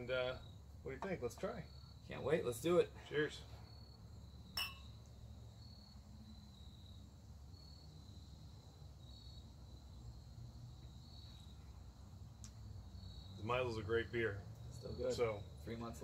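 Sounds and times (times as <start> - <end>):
faint crickets chirping: 0.0 - 16.0
beer glasses clinking: 4.6 - 5.0.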